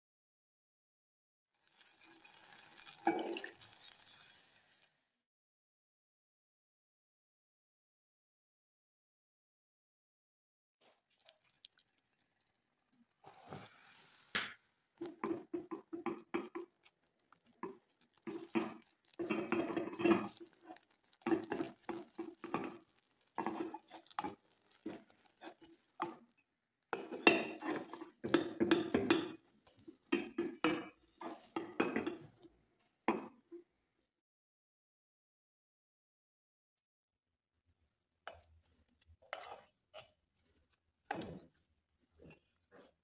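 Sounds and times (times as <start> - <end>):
spatula scraping dough in metal pot: 13.2 - 32.4, 38.3 - 43.0.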